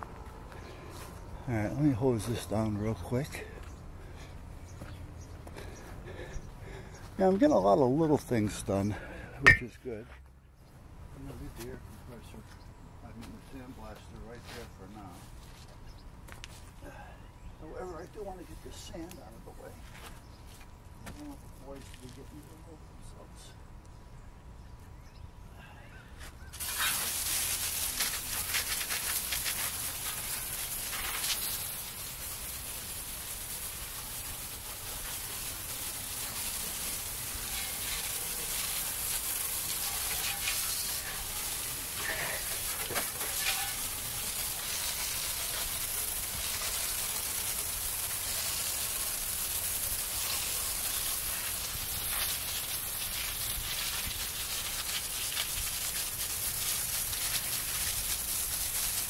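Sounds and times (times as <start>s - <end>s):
hose spraying water on ground: 0.0s - 9.7s, 26.4s - 59.0s.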